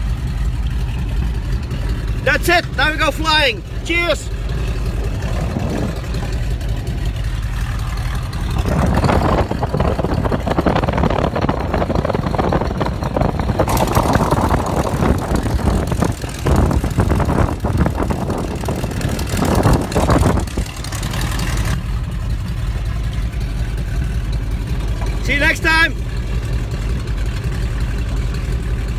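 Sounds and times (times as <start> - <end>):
biplane engine running: 0.0 - 28.9.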